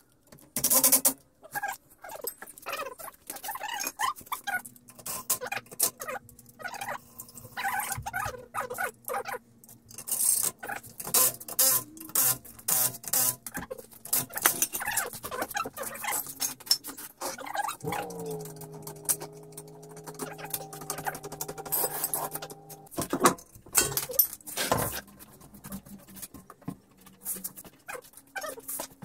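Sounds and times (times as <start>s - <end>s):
steady hum: 17.8s - 22.9s
hand tools clinking on metal parts: 17.9s - 22.9s.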